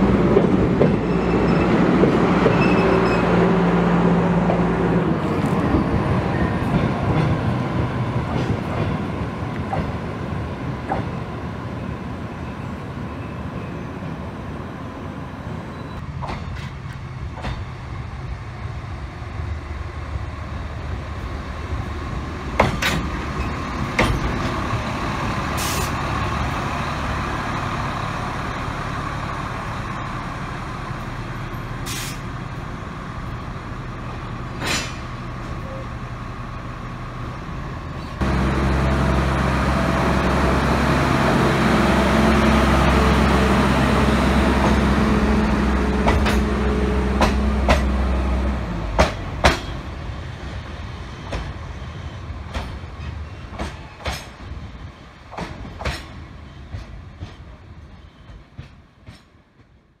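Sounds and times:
diesel locomotive engine: 0:00.0 - 1:00.0
wheels clacking over rail joints: 0:22.5 - 0:26.6, 0:44.5 - 0:49.9, 0:55.2 - 0:59.8.

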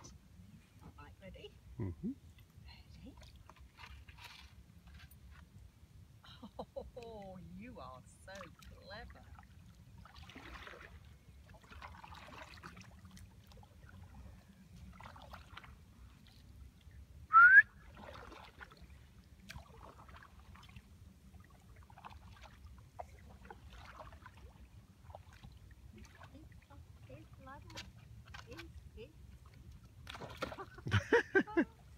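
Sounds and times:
low steady rumble: 0:00.0 - 0:10.1
paddle splashing in water: 0:03.1 - 0:05.4, 0:08.3 - 0:31.9
rising whistle: 0:17.3 - 0:17.7.

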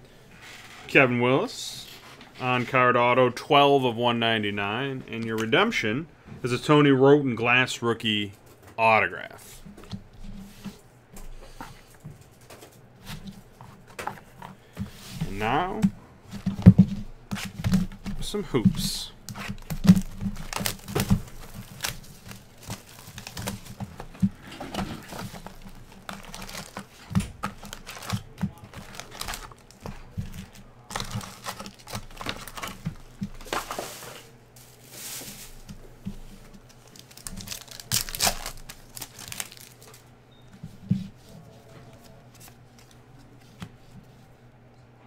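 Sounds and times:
foil packs rustling and tearing: 0:17.4 - 0:35.8, 0:36.5 - 0:40.0
plastic shrink wrap crinkling: 0:19.1 - 0:40.1.

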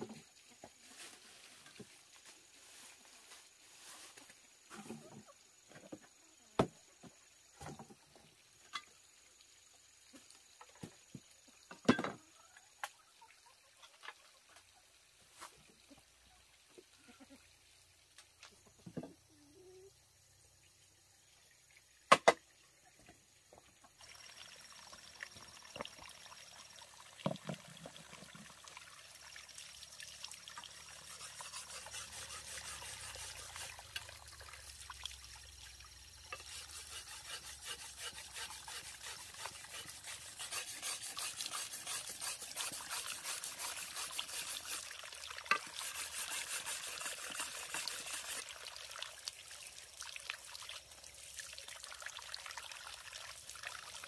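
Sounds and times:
water trickling and pouring: 0:22.9 - 0:54.0.

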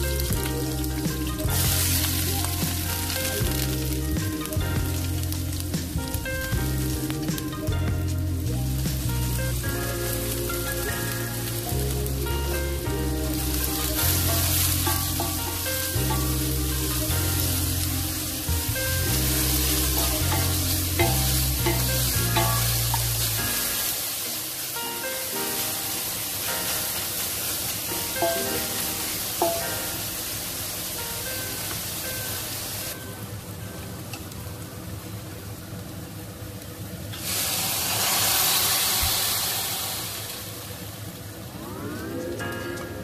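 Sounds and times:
background music with bass: 0:00.0 - 0:24.0
food sizzling in hot oil: 0:00.0 - 0:33.2, 0:34.3 - 0:43.0
spatula scraping wok: 0:13.3 - 0:23.8
spatula knocking on pan: 0:28.2 - 0:29.9.

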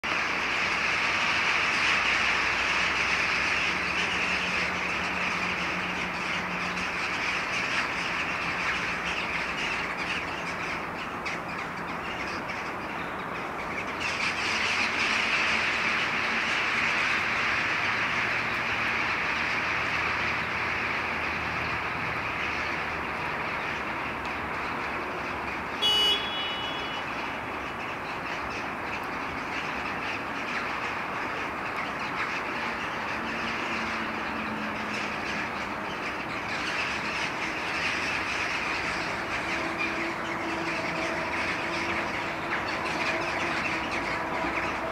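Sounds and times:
flock of jackdaws calling: 0:00.0 - 0:44.9.

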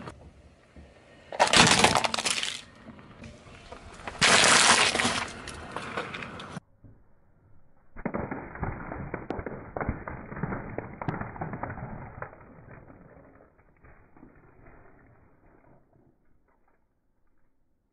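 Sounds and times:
eggshells cracking under car tyre: 0:01.3 - 0:02.8, 0:03.6 - 0:06.6, 0:08.0 - 0:15.4.

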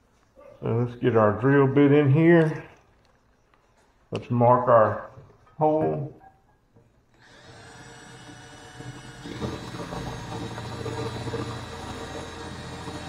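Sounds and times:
drill whining into metal: 0:07.1 - 0:13.0.

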